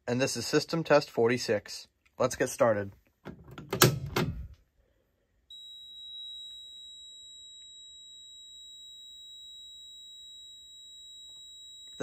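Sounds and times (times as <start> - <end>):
high-pitched continuous alarm tone: 5.5 - 12.0.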